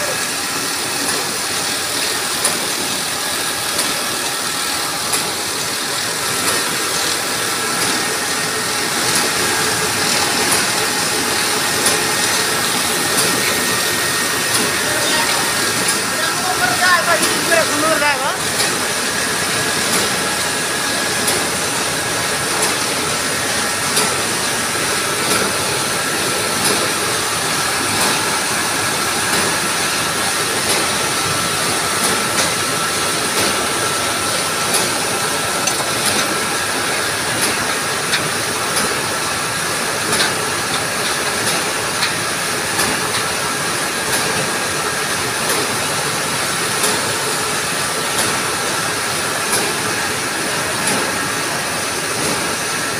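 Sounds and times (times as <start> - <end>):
machinery hiss and hum: 0.0 - 52.9.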